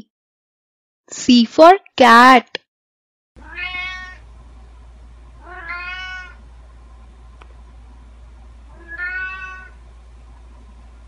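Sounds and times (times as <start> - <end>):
cat meowing: 3.4 - 4.2, 5.4 - 6.4, 8.7 - 9.8.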